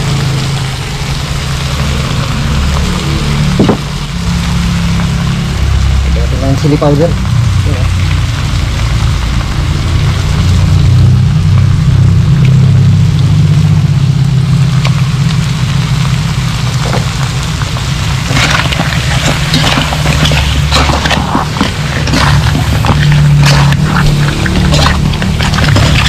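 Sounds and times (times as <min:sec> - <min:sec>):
gas burner roaring: 0:00.0 - 0:26.0
metal spatula scraping wok: 0:18.2 - 0:26.0.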